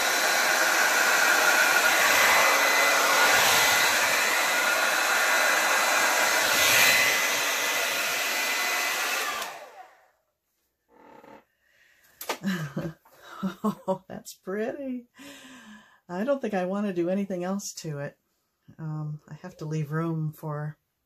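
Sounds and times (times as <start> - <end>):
hair dryer running: 0.0 - 10.1.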